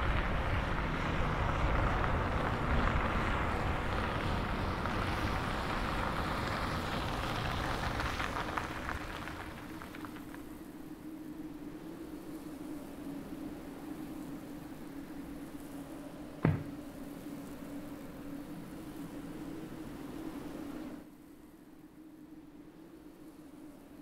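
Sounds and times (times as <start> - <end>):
light crackles: 0.0 - 24.0
outdoor hush: 10.2 - 24.0
car cabin road noise: 16.4 - 17.0.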